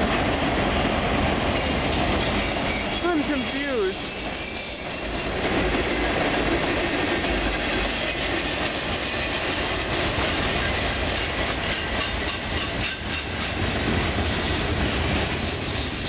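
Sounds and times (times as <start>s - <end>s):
train wheels clattering on rails: 0.0s - 16.0s.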